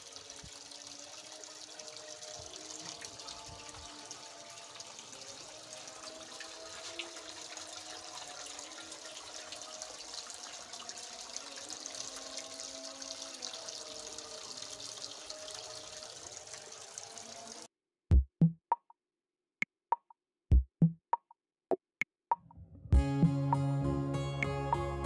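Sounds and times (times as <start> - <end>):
fountain water trickling and splashing: 0.0 - 17.7.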